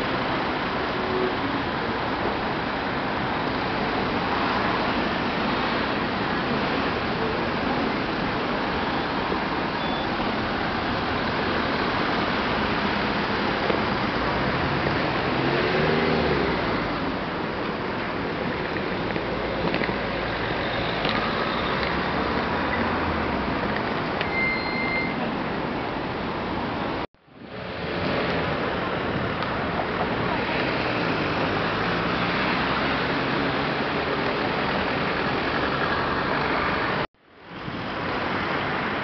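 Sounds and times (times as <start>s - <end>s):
cars passing: 0.0s - 39.0s
short high tone: 24.2s - 25.2s.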